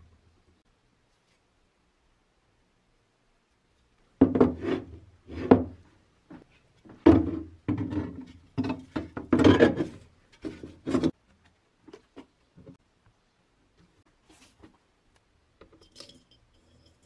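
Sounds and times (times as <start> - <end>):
plastic tub set on wooden table: 4.2 - 5.9, 6.5 - 12.8.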